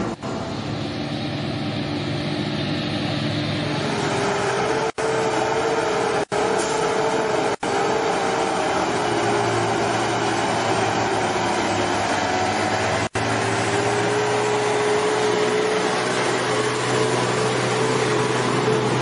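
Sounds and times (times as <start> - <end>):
diesel trucks driving past: 0.0 - 19.0.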